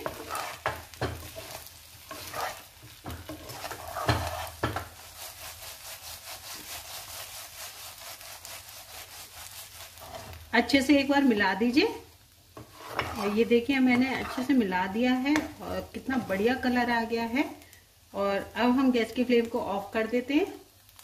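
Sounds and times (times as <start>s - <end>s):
wooden spatula scraping a pan: 0.0s - 10.5s, 12.5s - 16.9s
food sizzling in oil: 0.0s - 21.0s.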